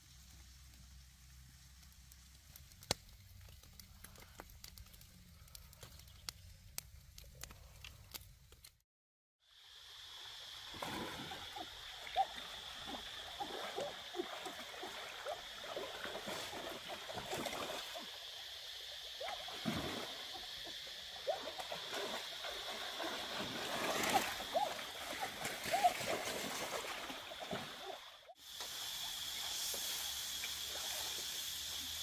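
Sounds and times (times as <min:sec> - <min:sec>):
water splashing and gurgling: 0:10.4 - 0:28.5.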